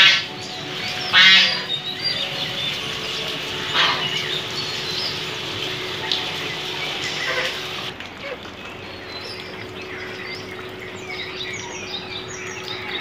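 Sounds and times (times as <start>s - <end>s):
geese honking: 0.0s - 7.9s
rain falling: 0.0s - 13.0s.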